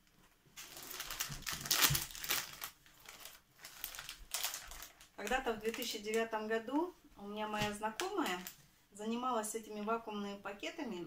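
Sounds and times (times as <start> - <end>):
plastic packaging crinkling: 0.0 - 6.5, 7.5 - 8.6.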